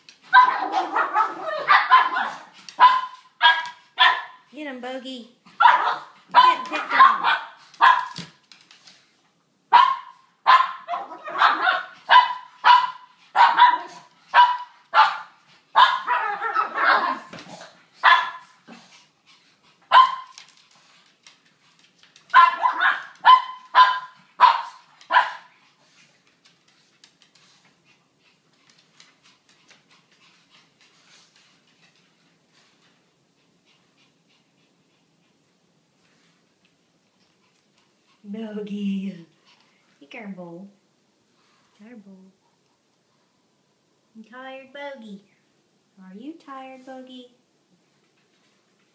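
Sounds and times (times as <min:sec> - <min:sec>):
small dogs barking: 0:00.3 - 0:04.4, 0:05.5 - 0:08.2, 0:09.7 - 0:17.3, 0:18.0 - 0:18.6, 0:19.9 - 0:20.4, 0:22.3 - 0:25.5.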